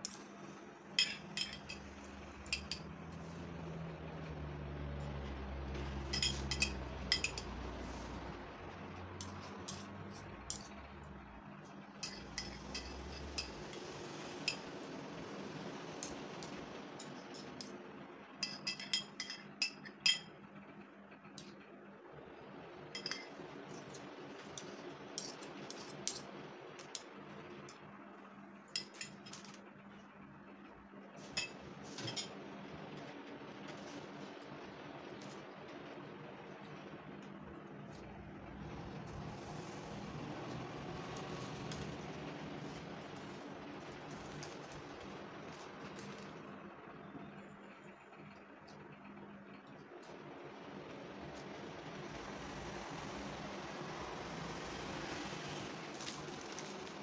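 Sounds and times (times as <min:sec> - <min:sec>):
metal spoon clinking on plate: 0:01.0 - 0:01.9, 0:06.1 - 0:07.6, 0:18.4 - 0:20.3, 0:23.0 - 0:23.3.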